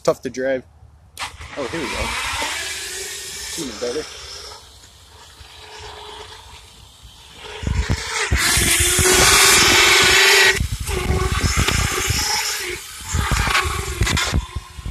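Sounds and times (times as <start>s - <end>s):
loud rushing hiss: 1.2s - 14.2s
electric motor whine: 1.2s - 14.9s
wind buffeting microphone: 6.7s - 14.9s.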